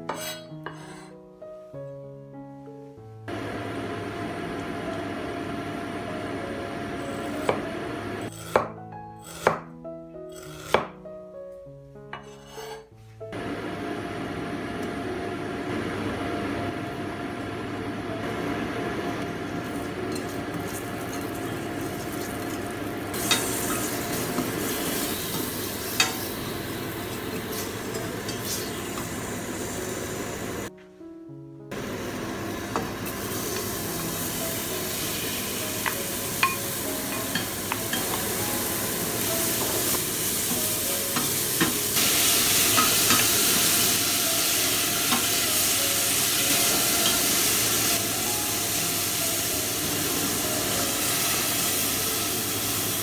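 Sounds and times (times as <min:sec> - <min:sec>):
ginger sizzling in hot oil: 0:18.4 - 0:30.7, 0:31.8 - 0:53.0.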